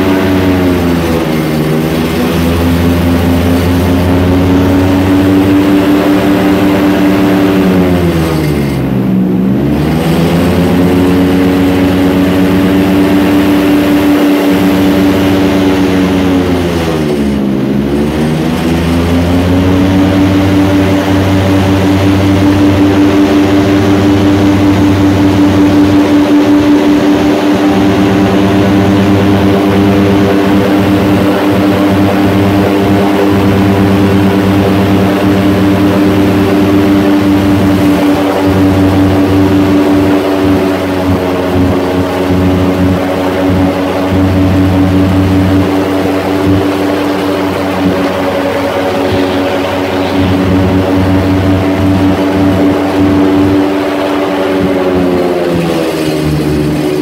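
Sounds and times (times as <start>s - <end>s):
airboat engine and propeller: 0.0s - 57.0s.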